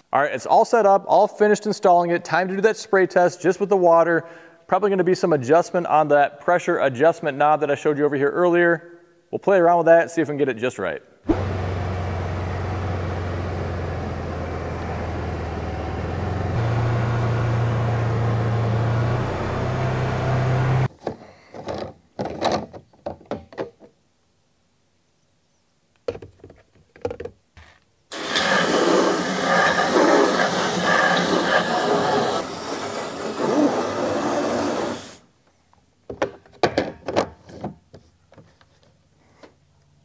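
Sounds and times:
utility vehicle engine running: 11.3 - 20.9
hose water rushing into tank: 28.1 - 35.2.

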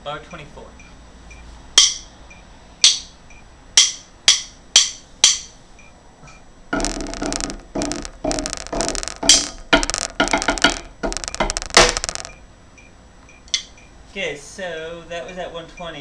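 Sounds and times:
drum sticks clicking: 1.8 - 2.1
drumming on practice pads: 6.8 - 12.3.

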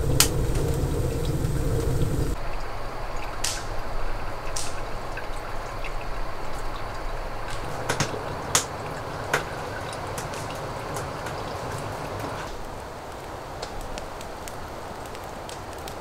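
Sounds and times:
sharp drip-like ticks: 0.0 - 16.0
steady rushing hiss: 0.0 - 16.0.

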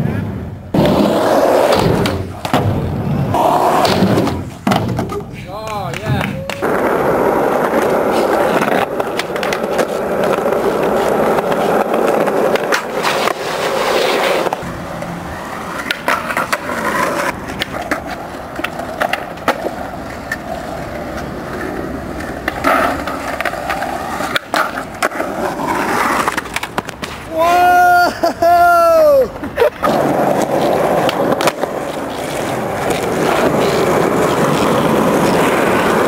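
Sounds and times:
skateboard wheels rolling on pavement: 0.0 - 36.0
skateboard clacking on landing: 1.6 - 13.4.

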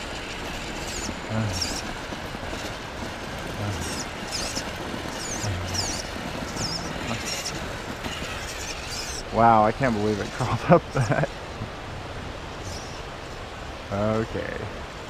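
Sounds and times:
rc car electric motor whining: 0.0 - 1.9, 3.6 - 10.5
short low hums: 5.2 - 7.8.

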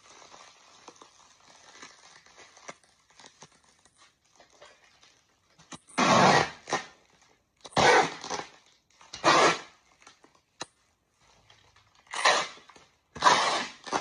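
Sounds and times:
bubble wrap crinkling: 0.0 - 5.8.

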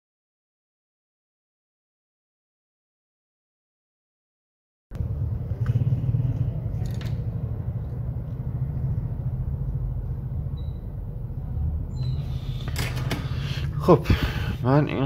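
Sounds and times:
low background rumble: 4.9 - 12.6.

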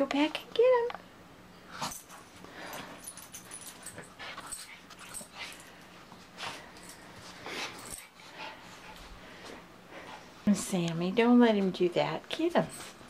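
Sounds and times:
dogs rustling in dog bed: 10.4 - 13.0.

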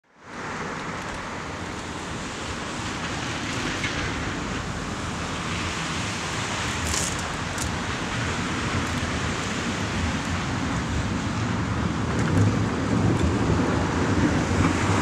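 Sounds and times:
tram rolling over track: 0.2 - 15.0.

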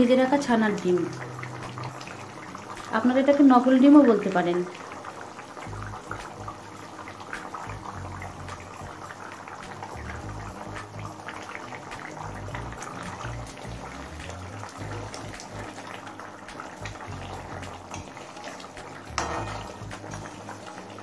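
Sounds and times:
gravy bubbling in a metal pan: 0.0 - 21.0
soft background music: 0.0 - 21.0
metal spatula stirring: 19.2 - 20.3.

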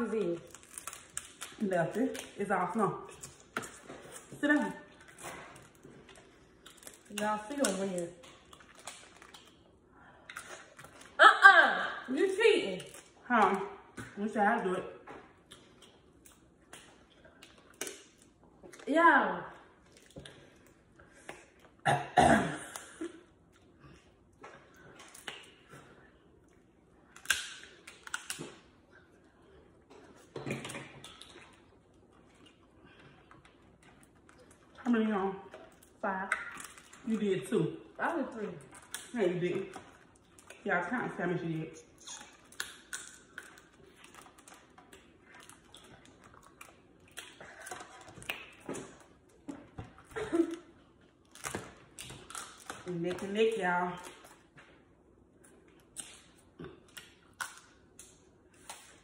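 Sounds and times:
crab shells cracking: 0.4 - 2.3, 6.6 - 9.7, 27.1 - 28.7, 42.0 - 48.7, 51.2 - 52.9.

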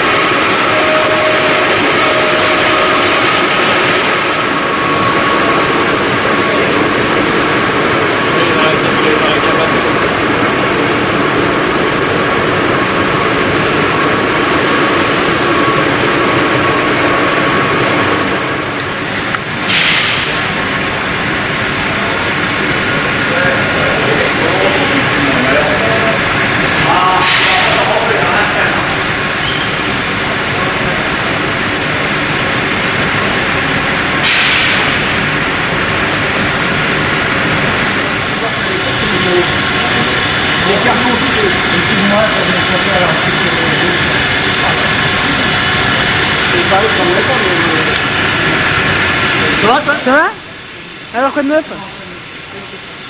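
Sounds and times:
printing press running: 0.0 - 53.0.

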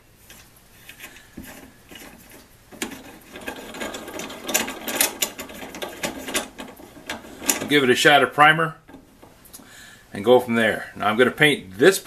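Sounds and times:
clamp screw rattling and clicking: 1.0 - 7.9, 8.9 - 9.5.

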